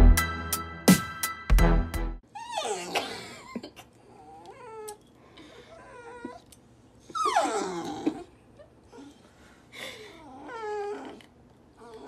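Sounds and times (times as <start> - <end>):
puppy whining: 2.2 - 3.0, 4.0 - 12.0
puppy wailing: 2.3 - 3.0, 5.7 - 9.2, 10.2 - 12.0.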